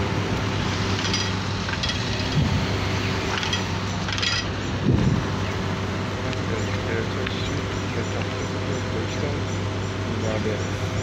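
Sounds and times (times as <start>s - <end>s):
cars idling and passing: 0.0s - 11.0s
low thumps: 4.7s - 5.5s.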